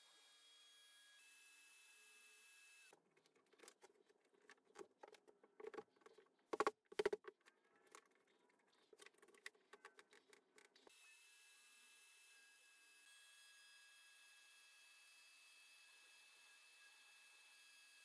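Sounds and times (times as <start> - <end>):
wooden object clicks and knocks: 4.8 - 7.4.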